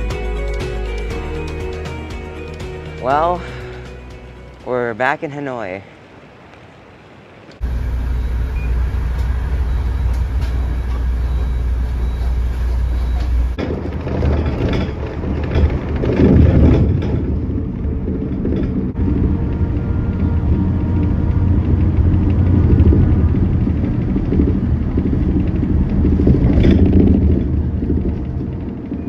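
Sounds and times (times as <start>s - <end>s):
engine and tyre rumble in cabin: 7.2s - 29.0s.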